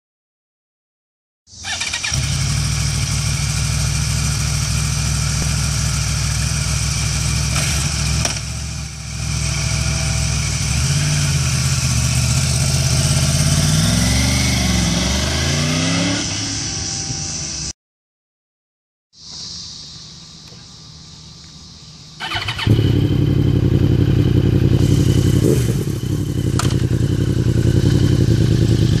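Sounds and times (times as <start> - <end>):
motorcycle engine idling: 1.5 - 13.6, 21.8 - 29.0
engine revving: 1.6 - 17.4, 22.2 - 29.0.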